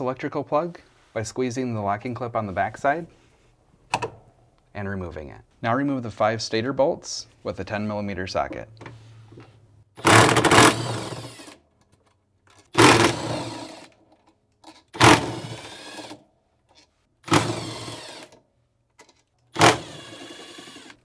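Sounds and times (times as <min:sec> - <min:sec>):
cordless drill whining: 0:10.0 - 0:11.6, 0:12.7 - 0:14.0, 0:14.9 - 0:16.2, 0:17.3 - 0:18.4, 0:19.5 - 0:21.0.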